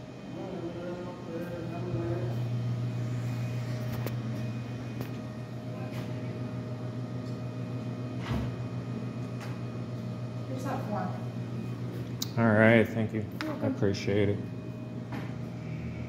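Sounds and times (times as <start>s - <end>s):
ventilation hum: 0.0s - 16.0s.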